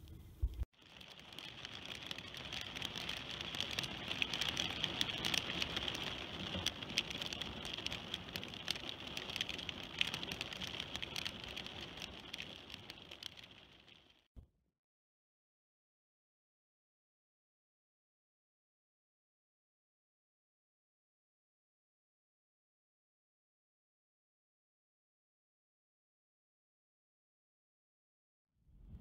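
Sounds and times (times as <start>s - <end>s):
hailstones striking ground: 0.5s - 14.2s.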